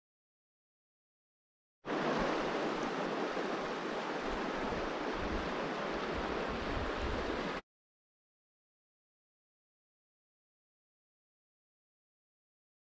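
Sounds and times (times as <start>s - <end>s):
steady rushing outdoor noise: 1.9s - 7.6s.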